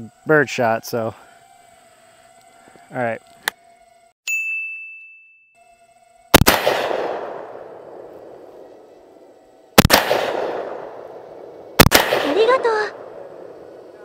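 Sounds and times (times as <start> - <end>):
shotgun shots echoing: 6.3 - 8.6, 9.8 - 13.7.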